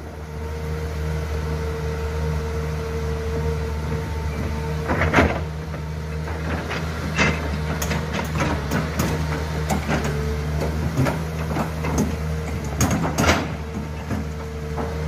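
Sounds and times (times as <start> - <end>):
excavator engine hum and whine: 0.0 - 15.0
excavator bucket clanking: 4.8 - 15.0.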